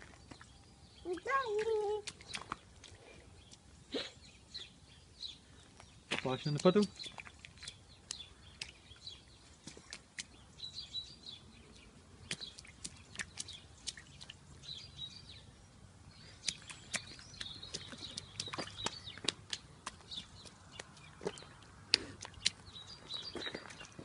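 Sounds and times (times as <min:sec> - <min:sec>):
birds chirping: 0:00.0 - 0:24.0
boots splashing in muddy puddle: 0:01.2 - 0:03.1, 0:05.7 - 0:15.2, 0:16.2 - 0:24.0.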